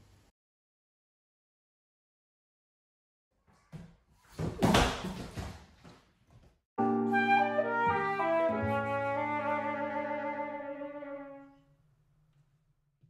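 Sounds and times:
flute melody: 6.8s - 11.6s.

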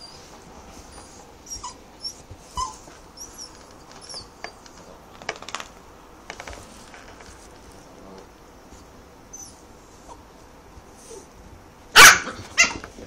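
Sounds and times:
small dog whining yelps: 0.9s - 4.6s, 9.3s - 10.2s, 12.0s - 12.9s.

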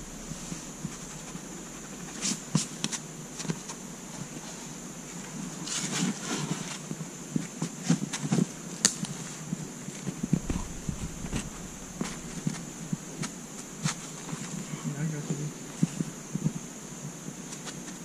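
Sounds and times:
high-pitched insect drone: 0.0s - 4.2s, 10.2s - 17.6s.

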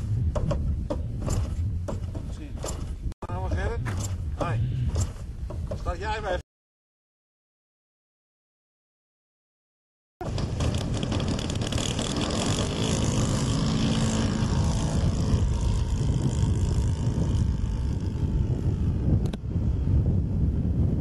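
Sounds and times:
wind noise on microphone: 0.0s - 6.4s, 10.2s - 21.0s
model plane engine and propeller: 10.2s - 21.0s.

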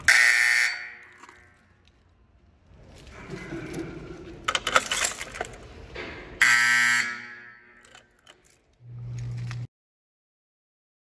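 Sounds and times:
fire alarm horn buzzing: 0.0s - 1.5s, 6.4s - 8.1s
handling clicks and rattling: 2.9s - 6.0s, 7.8s - 9.6s.

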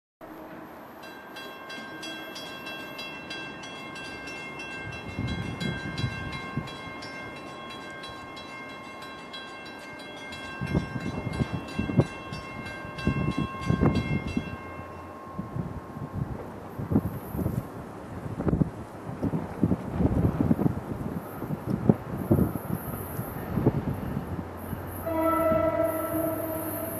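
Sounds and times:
crossing warning bell ringing: 0.9s - 16.9s, 22.6s - 26.9s
wind buffeting the microphone: 4.8s - 7.0s, 10.5s - 14.7s, 15.4s - 26.5s.

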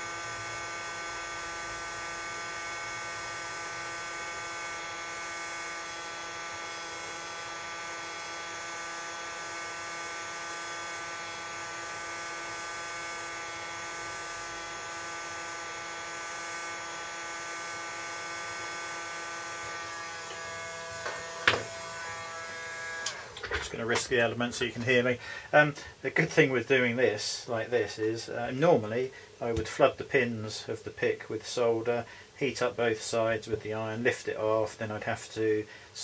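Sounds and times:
hot air gun fan whine: 0.0s - 25.6s.

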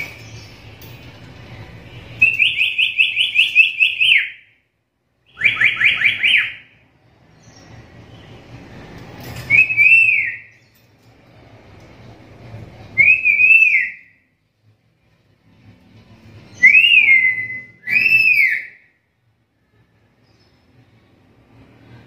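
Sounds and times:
parrot calling rising notes: 16.6s - 18.9s.

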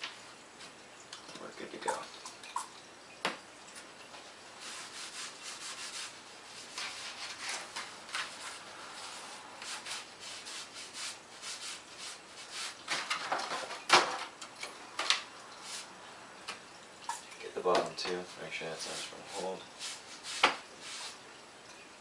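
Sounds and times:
foam sheets scuffing and rustling: 4.6s - 14.2s, 18.8s - 21.2s.

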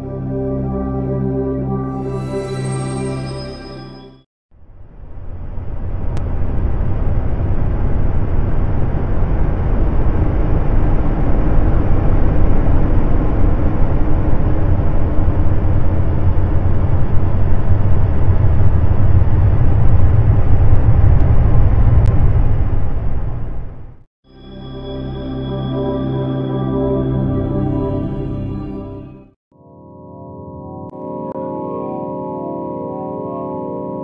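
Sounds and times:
low rumbling drone with hum: 4.9s - 24.0s.

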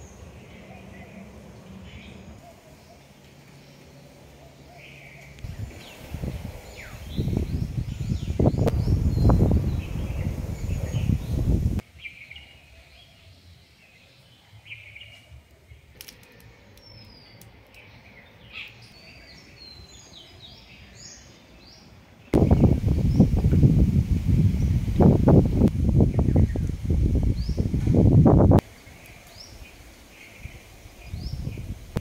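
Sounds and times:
birds chirping: 0.0s - 32.0s
wind rumble on microphone: 5.4s - 11.8s, 22.3s - 28.7s, 29.4s - 32.0s.

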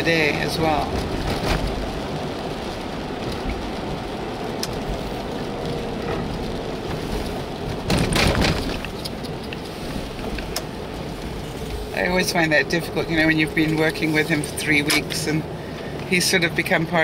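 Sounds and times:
car road and engine noise: 0.0s - 17.0s.

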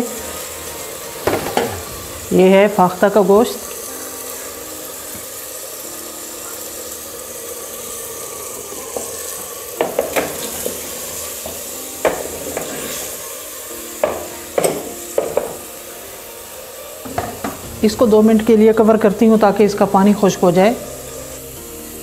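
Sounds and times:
food sizzling in a pot: 0.0s - 22.0s
wooden spoon knocking a pot: 9.8s - 10.5s, 14.0s - 15.6s.

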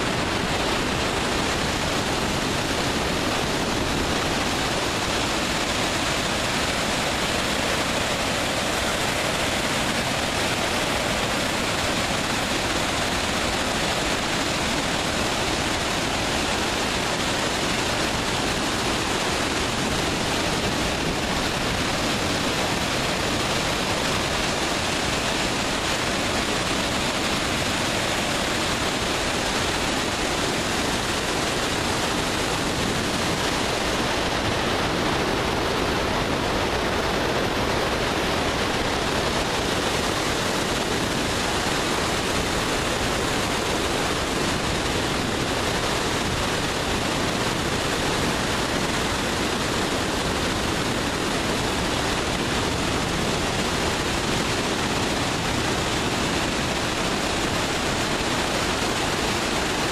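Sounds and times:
water rushing over spillway: 0.0s - 59.9s.

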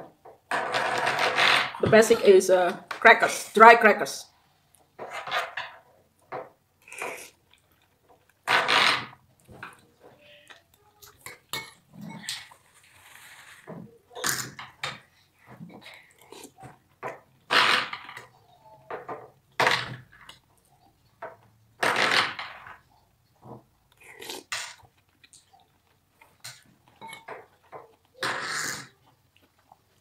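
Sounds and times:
chewing: 6.8s - 8.4s, 15.0s - 17.5s, 22.8s - 30.0s
loud noodle slurps: 28.2s - 29.0s.

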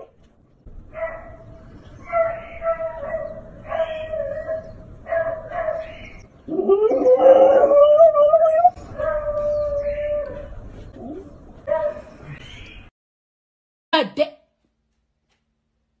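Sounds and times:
dog howling: 6.5s - 12.0s.

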